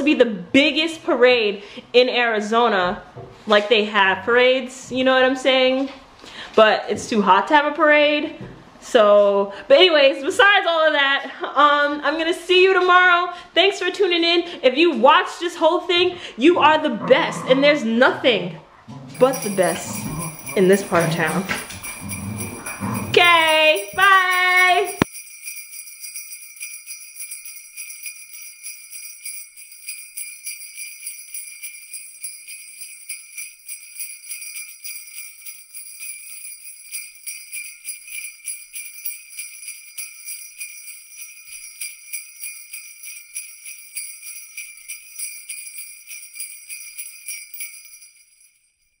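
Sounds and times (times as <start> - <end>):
jingle bells shaken: 19.2 - 49.0.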